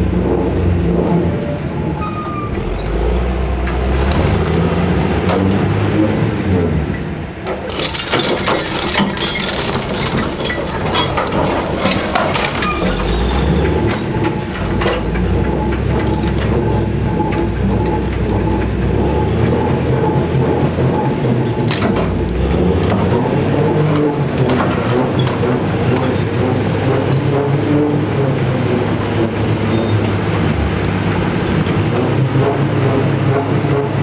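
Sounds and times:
low engine drone: 0.0s - 34.0s
steel bucket clattering on rock: 7.5s - 15.2s.

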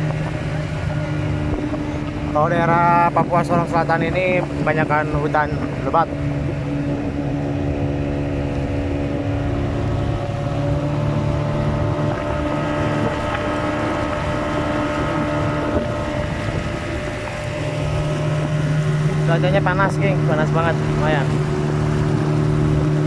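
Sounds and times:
motorboat engine running: 0.0s - 23.0s
wind noise on microphone: 0.0s - 23.0s.

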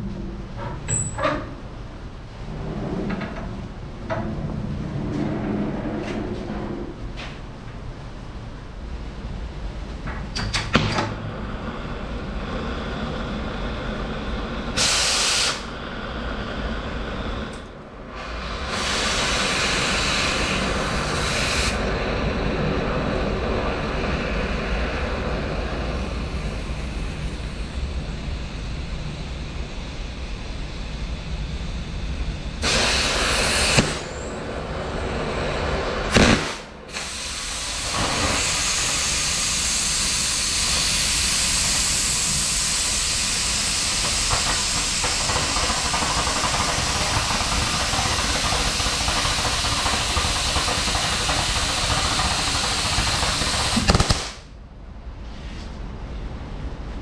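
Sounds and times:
cutting torch hissing: 11.4s - 27.9s, 32.6s - 54.4s.

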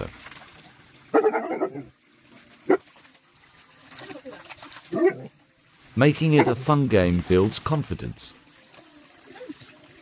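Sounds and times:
dog barking: 1.1s - 1.9s
dogs making pitched calls: 1.1s - 2.0s, 4.1s - 5.3s.

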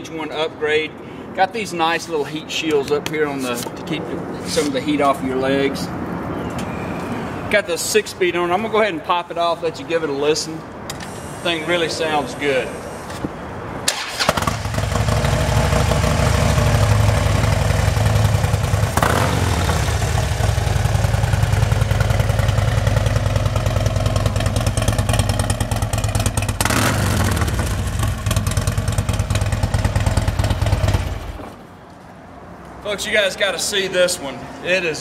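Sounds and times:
motorcycle engine idling: 14.4s - 31.4s.

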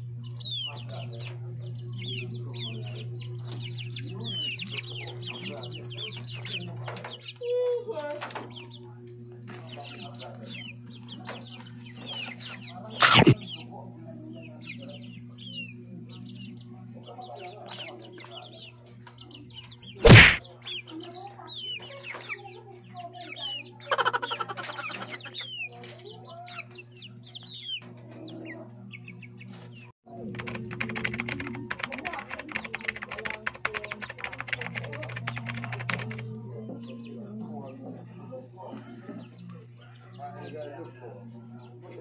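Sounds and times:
chickens clucking and peeping: 0.0s - 42.0s
loud brief sounds: 20.0s - 20.4s.

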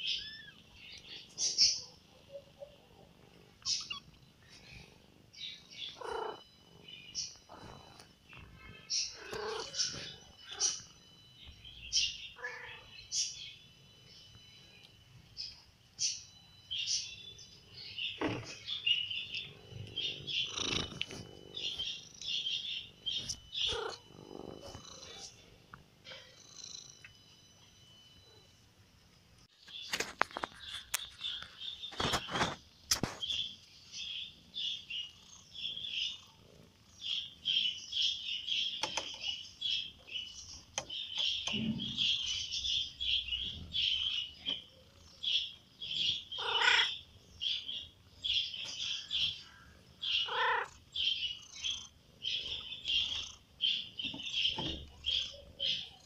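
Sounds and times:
lower bird calls: 0.0s - 28.4s, 34.6s - 56.0s
small birds chirping: 0.0s - 56.0s
sharp clicks: 38.8s - 39.3s.

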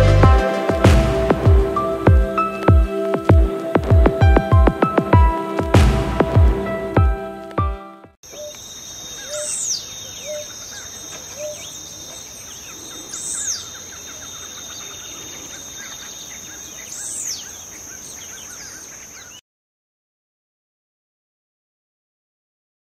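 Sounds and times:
birds calling: 8.2s - 19.4s
insects droning: 8.2s - 19.4s
high arching bird call: 8.3s - 19.4s.

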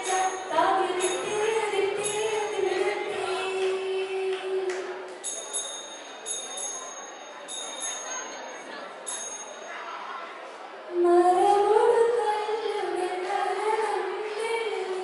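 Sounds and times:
jingling percussion: 0.0s - 2.8s, 5.2s - 9.8s
woman singing: 0.0s - 5.0s, 10.9s - 15.0s.

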